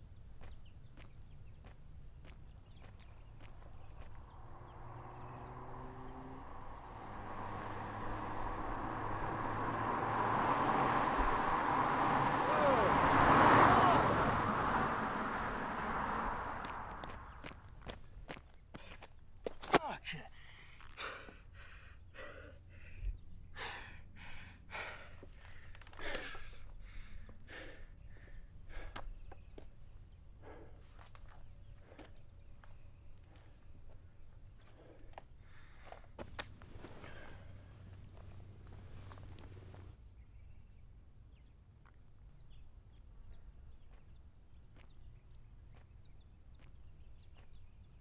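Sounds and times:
low wind rumble: 0.0 - 18.3
car approaching on road: 0.2 - 18.4, 28.5 - 48.0
man gasping breaths: 20.3 - 29.2, 34.6 - 36.0.

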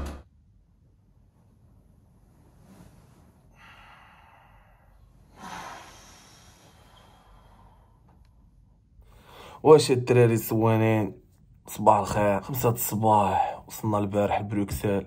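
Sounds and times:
man breathing heavily: 3.5 - 8.2, 9.0 - 9.6.

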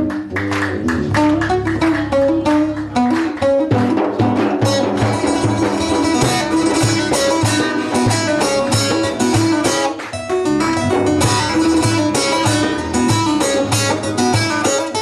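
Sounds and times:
plucked long-necked lute melody: 0.0 - 15.0
steady low drum beat: 3.7 - 9.8, 10.5 - 14.7.

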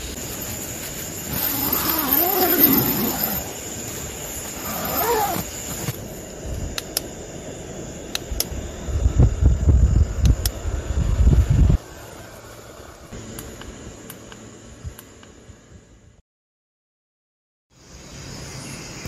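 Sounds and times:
fan air blowing on microphone: 0.0 - 16.1
wavering call: 1.3 - 3.7, 4.4 - 5.6.

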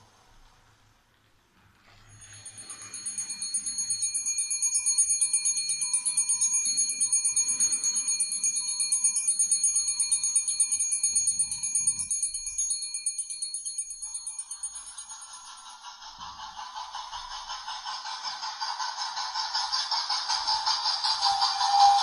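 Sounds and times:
electric warning bell ringing: 2.0 - 15.9, 20.1 - 22.0.

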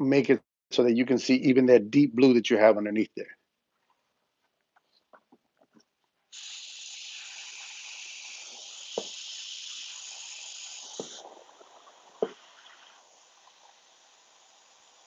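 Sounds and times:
airbrush spraying hiss: 6.3 - 15.0.

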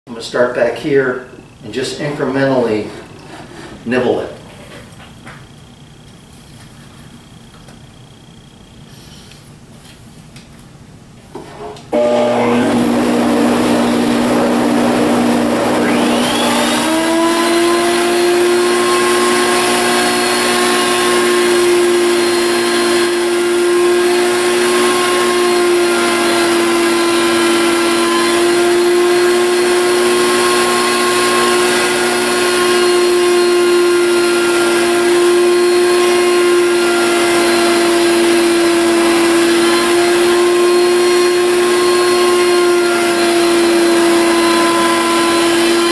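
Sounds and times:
router whining: 11.8 - 45.9
router bit cutting wood: 11.9 - 45.9.

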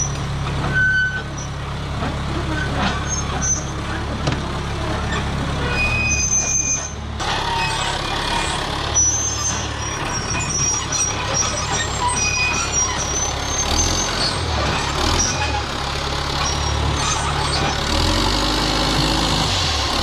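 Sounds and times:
bulldozer diesel engine running: 0.0 - 20.0
high-pitched squeaks: 5.0 - 15.6, 16.4 - 17.8.

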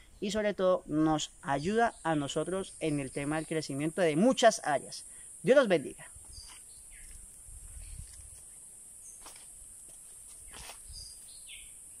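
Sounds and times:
high-pitched insect drone: 1.3 - 12.0
bird chirps: 6.3 - 7.2, 10.5 - 11.8
soft rustles: 9.2 - 11.4.

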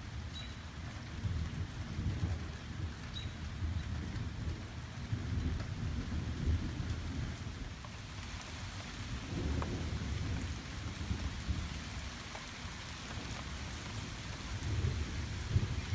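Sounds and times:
steady rain falling: 0.0 - 15.9
distant thunder rumble: 1.2 - 7.6, 9.1 - 12.0, 13.2 - 15.9.

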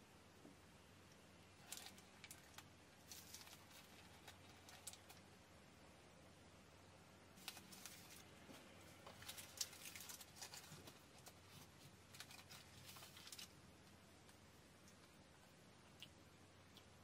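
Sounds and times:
paper baking cup crinkling: 9.0 - 13.6.

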